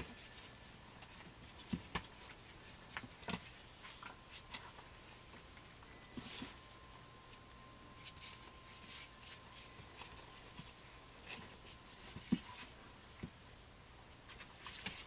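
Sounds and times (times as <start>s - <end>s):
puppies rustling on newspaper: 0.0s - 13.4s.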